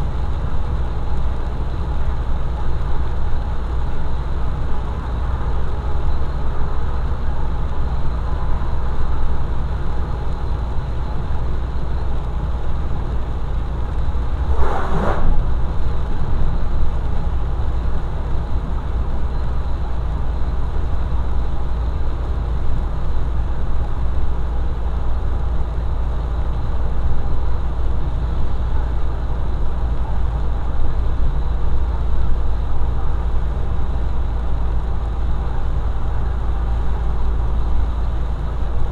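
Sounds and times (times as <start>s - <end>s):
vehicle driving on wet road: 0.0s - 38.9s
brief louder sound: 14.4s - 15.6s.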